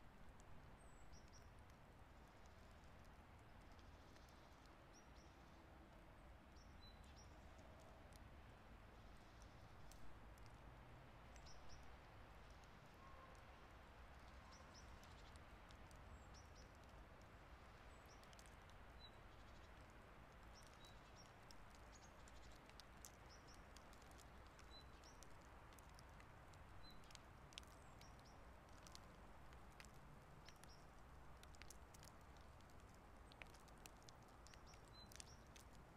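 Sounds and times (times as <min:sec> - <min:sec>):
soft scattered ticks: 0:00.3 - 0:35.9
small birds chirping: 0:06.6 - 0:08.2, 0:11.3 - 0:17.0, 0:17.6 - 0:35.8.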